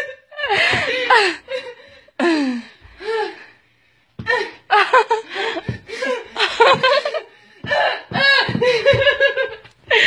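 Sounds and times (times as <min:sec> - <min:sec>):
woman laughing: 0:04.7 - 0:10.0.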